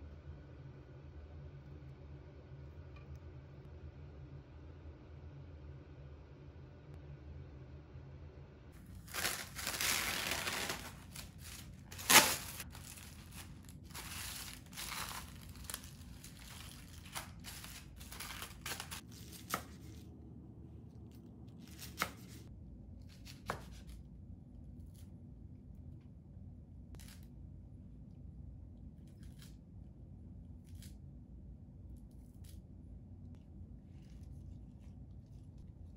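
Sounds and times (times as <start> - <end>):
plastic film crinkling: 8.8 - 19.1
cling wrap pulled and torn: 8.9 - 19.0.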